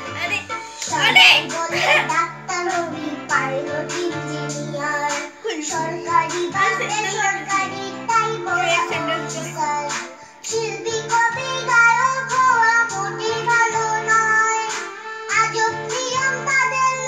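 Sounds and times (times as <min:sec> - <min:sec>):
girl singing: 0:00.0 - 0:17.0
instrumental backing: 0:00.0 - 0:17.0.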